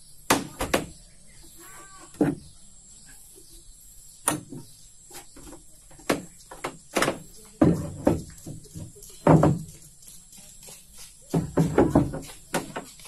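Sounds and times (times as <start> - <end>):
sharp knocks and clacks: 6.0 - 13.0.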